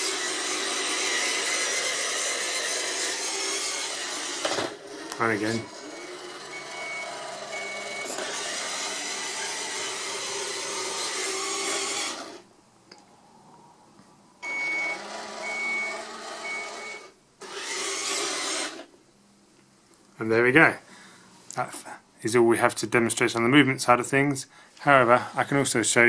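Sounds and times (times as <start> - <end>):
toy robot motors whirring: 0.0 - 12.4, 14.9 - 18.9.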